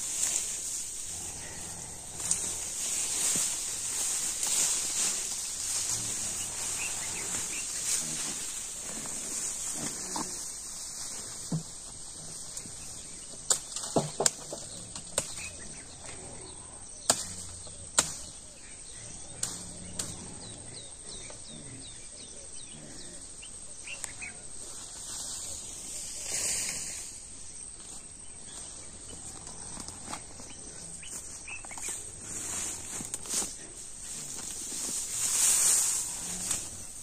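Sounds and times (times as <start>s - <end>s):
high insect drone: 0.0s - 12.6s.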